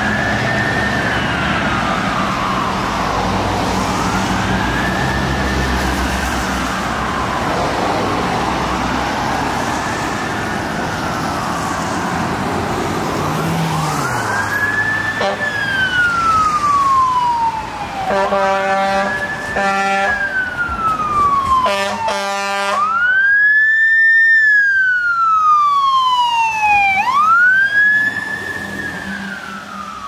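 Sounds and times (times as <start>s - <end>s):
fire truck siren wailing: 0.0s - 30.0s
air horn blasts: 15.2s - 15.5s, 18.1s - 20.2s, 21.6s - 23.0s.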